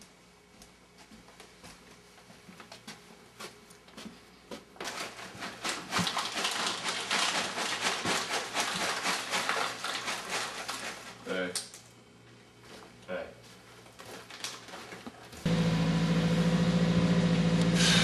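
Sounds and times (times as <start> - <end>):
plastic bag crinkling: 4.8 - 11.3, 14.1 - 15.0.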